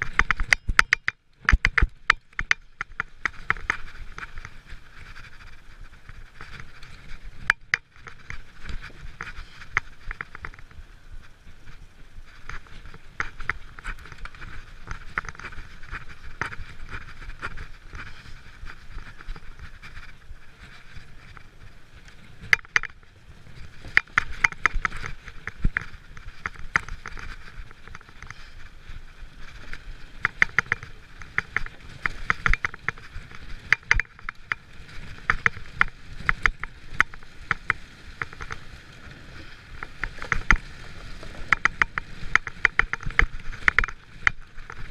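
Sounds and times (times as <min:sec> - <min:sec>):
bike clattering over wooden planks: 0:12.3 - 0:44.9.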